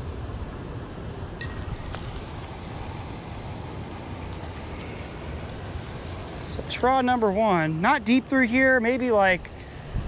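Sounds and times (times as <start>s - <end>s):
wind rumble on microphone: 9.4s - 10.0s.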